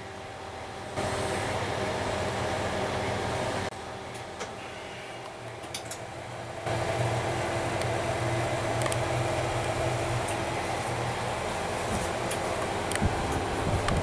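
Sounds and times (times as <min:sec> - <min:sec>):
low hum: 0:00.0 - 0:14.0
radio equipment fan drone: 0:00.0 - 0:14.0.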